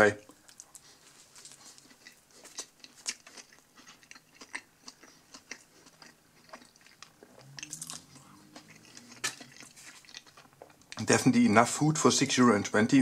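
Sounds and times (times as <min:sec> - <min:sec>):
person chewing food: 0:00.2 - 0:11.2
low hum: 0:07.0 - 0:11.0.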